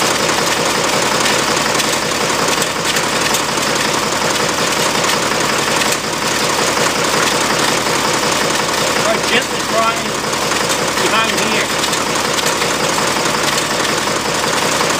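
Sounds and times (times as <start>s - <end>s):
tractor engine idling: 0.0s - 14.9s.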